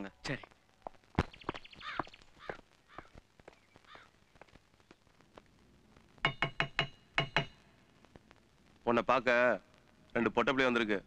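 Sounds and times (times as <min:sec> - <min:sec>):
crows cawing: 0:01.7 - 0:04.2
sharp metallic knocks: 0:06.2 - 0:07.7.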